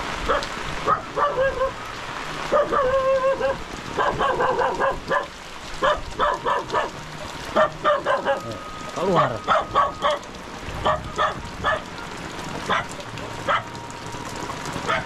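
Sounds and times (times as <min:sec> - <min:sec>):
heavy rain: 0:00.0 - 0:15.0
dog barking: 0:00.3 - 0:01.8, 0:02.5 - 0:08.6, 0:09.4 - 0:11.9, 0:12.7 - 0:13.7.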